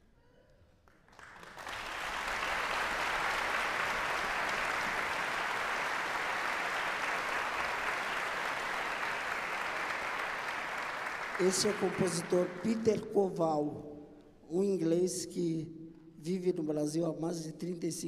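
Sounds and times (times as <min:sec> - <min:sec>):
audience applause: 0:00.9 - 0:12.7.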